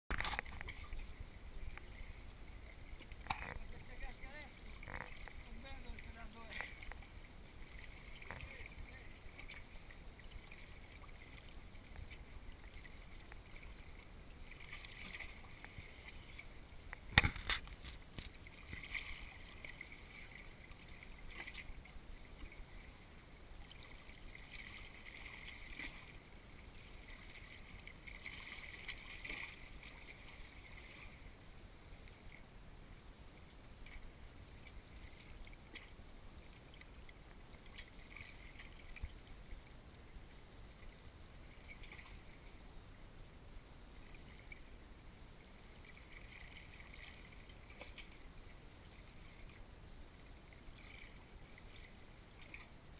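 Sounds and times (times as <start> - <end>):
water lapping against rocks: 0.1 - 31.4, 33.8 - 39.2, 45.7 - 49.7.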